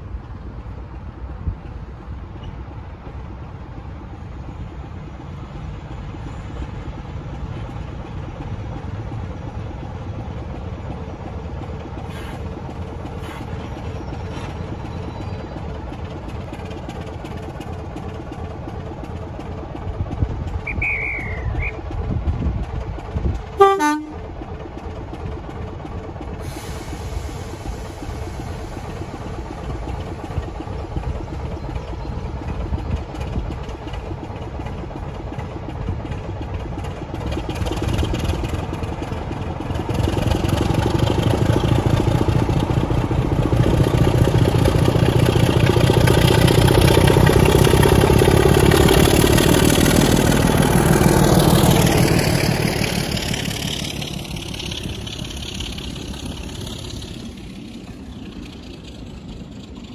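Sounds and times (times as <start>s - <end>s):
diesel locomotive engine rumble: 0.0s - 59.9s
locomotive horn toot: 23.6s - 24.2s.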